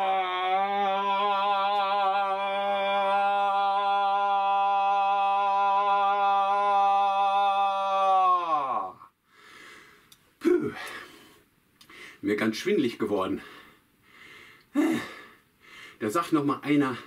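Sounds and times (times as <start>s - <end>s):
man shouting long held note: 0.0s - 9.0s.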